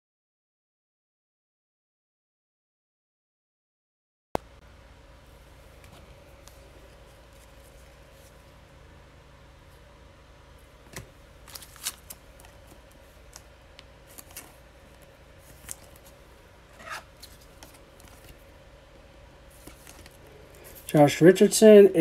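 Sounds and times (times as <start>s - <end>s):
faint steady hum: 4.4s - 22.0s
trading cards clicking and rustling: 10.8s - 18.5s, 19.5s - 21.0s.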